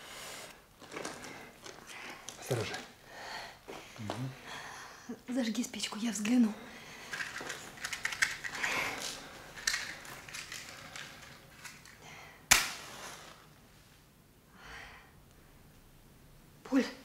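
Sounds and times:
matchbox rustling and scratching: 0:07.1 - 0:12.0.

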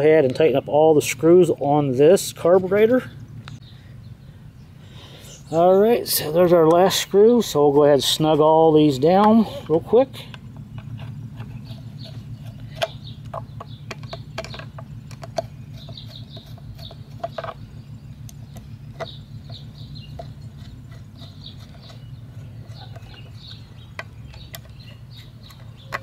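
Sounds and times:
steady low hum: 0:00.0 - 0:26.0
small metal clicks: 0:09.2 - 0:17.6.

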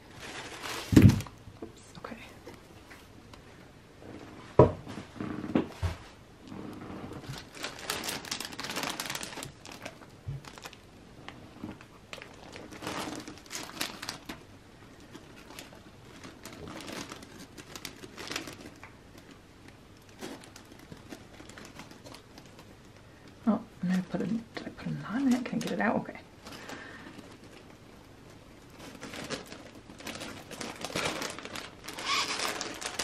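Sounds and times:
wrapping crinkling and rustling: 0:00.0 - 0:03.5, 0:06.1 - 0:33.0.

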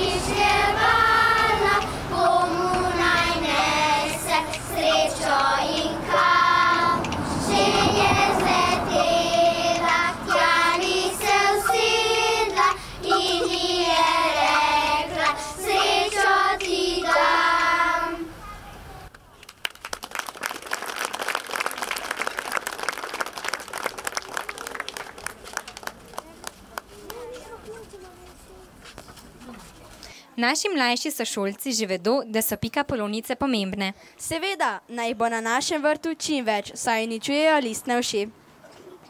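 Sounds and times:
children's choir singing: 0:00.0 - 0:18.4.

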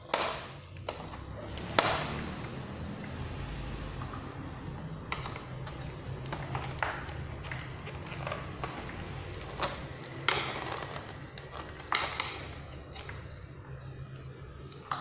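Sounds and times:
plastic and metal parts knocking: 0:00.0 - 0:02.3, 0:05.0 - 0:13.5.

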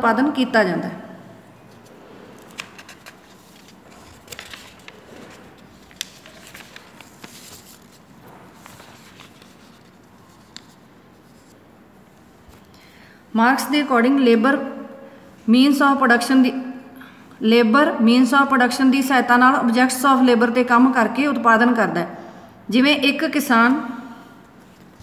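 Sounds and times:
paper rustling: 0:01.7 - 0:12.7.

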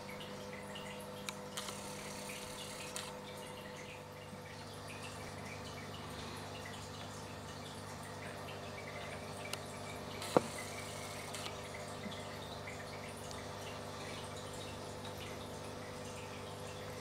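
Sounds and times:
water trickling and dripping: 0:00.0 - 0:17.0
tank equipment hum: 0:08.9 - 0:12.6.

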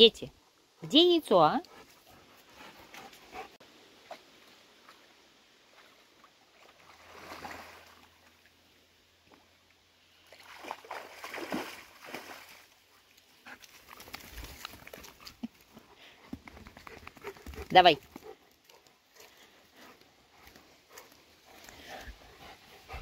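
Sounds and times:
water splashing and sloshing: 0:01.8 - 0:15.7.

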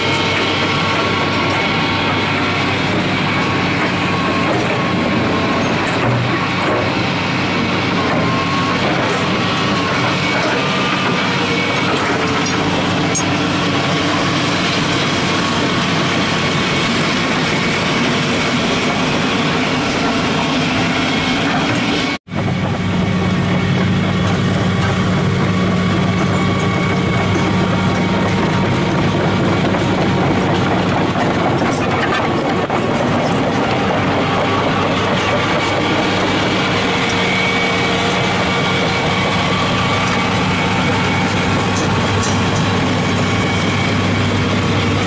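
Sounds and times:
excavator diesel engine running: 0:00.0 - 0:45.0.

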